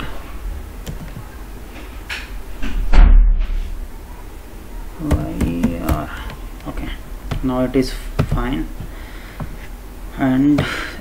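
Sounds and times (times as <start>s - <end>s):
loud dull thump: 2.9s - 3.5s
keyboard keystrokes: 5.0s - 6.4s.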